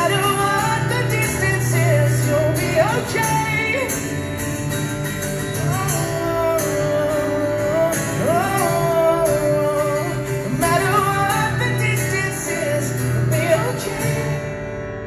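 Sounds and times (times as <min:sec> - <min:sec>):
acoustic guitar strummed: 0:00.0 - 0:15.0.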